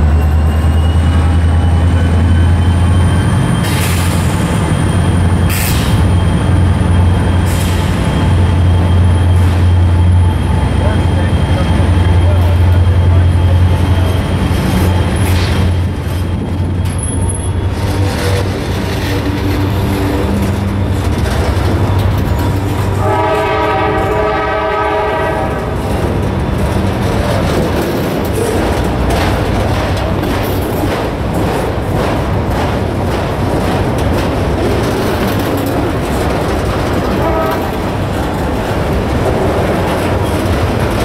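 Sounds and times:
freight train wheels rumbling: 0:00.0 - 0:41.0
train horn: 0:22.9 - 0:25.8, 0:37.1 - 0:37.8.

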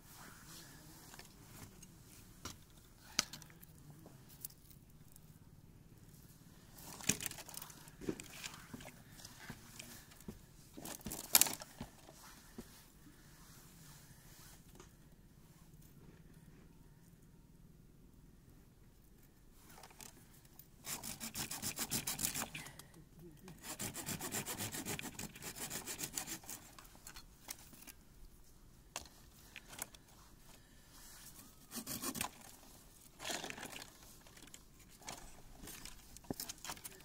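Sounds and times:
hand saw cutting wood: 0:20.8 - 0:22.6, 0:23.5 - 0:26.8, 0:31.6 - 0:32.6.

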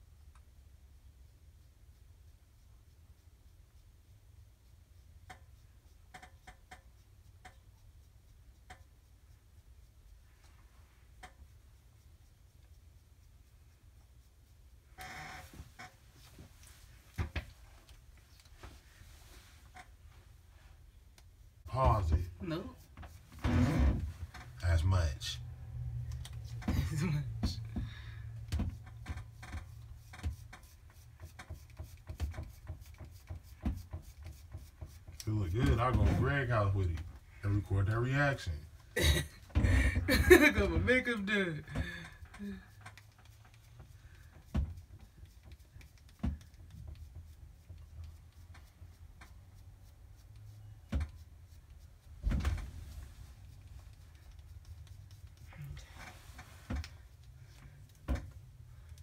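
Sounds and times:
makeup clicks and rubbing: 0:28.6 - 0:35.8, 0:42.7 - 0:52.1, 0:53.4 - 0:55.6.

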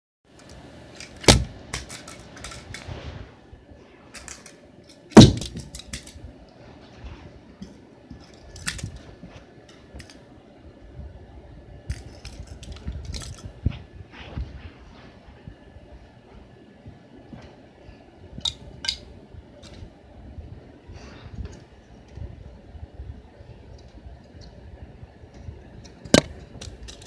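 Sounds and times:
plastic bricks knocking and clattering: 0:01.0 - 0:02.9, 0:11.9 - 0:13.5
small pieces rattling: 0:01.0 - 0:02.9, 0:11.9 - 0:13.4.

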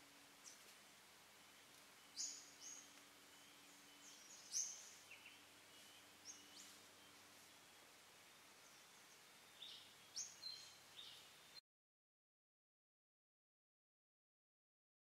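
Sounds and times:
faint steady hiss: 0:00.0 - 0:11.6
small birds chirping: 0:00.2 - 0:00.8, 0:01.4 - 0:11.6.

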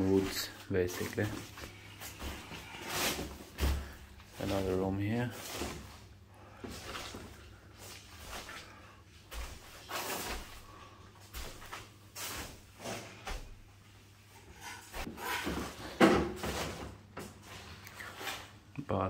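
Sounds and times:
footsteps on plastic sheets: 0:00.0 - 0:13.5.

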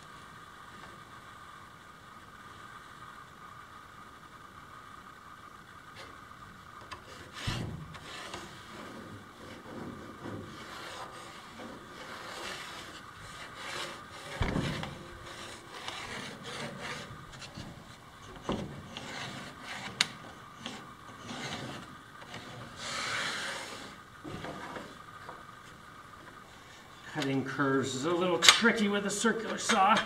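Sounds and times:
wood scraping on wood: 0:06.8 - 0:26.5.

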